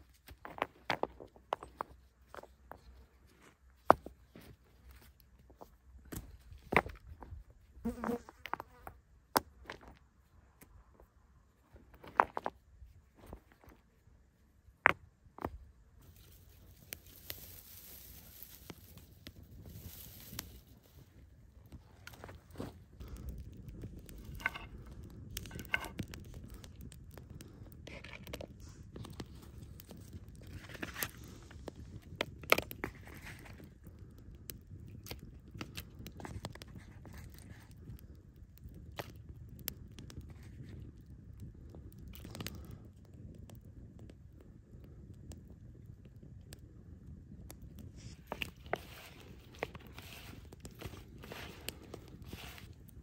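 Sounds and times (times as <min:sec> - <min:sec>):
campfire crackling and snapping: 0:14.3 - 0:53.0
stones knocking together: 0:14.8 - 0:21.0, 0:23.8 - 0:26.8.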